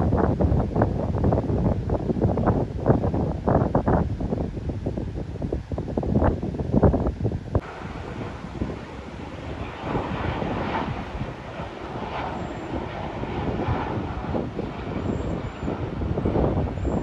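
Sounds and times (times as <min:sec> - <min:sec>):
wind gusting on microphone: 0:00.0 - 0:17.0
distant jet engines rumbling: 0:07.5 - 0:17.0.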